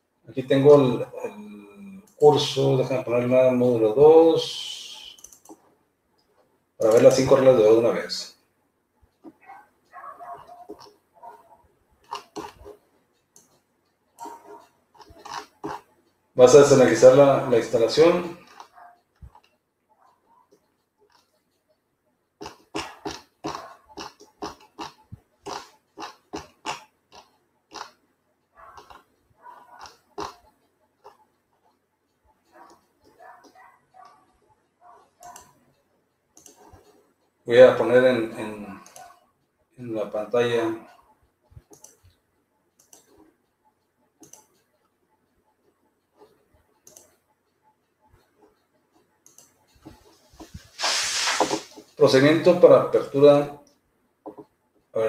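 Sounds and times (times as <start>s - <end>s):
computer keyboard typing: 4.9s - 5.6s, 6.8s - 7.5s, 9.1s - 21.8s, 22.4s - 39.2s, 40.8s - 50.5s.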